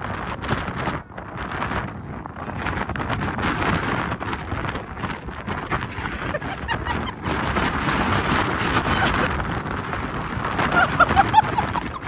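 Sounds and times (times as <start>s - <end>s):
noisy outdoor background: 0.0s - 12.0s
wind buffeting microphone: 0.0s - 12.0s.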